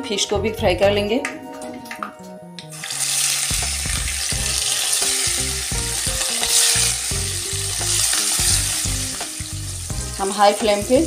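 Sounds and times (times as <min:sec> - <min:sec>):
fish sizzling in hot oil: 0:02.7 - 0:11.0.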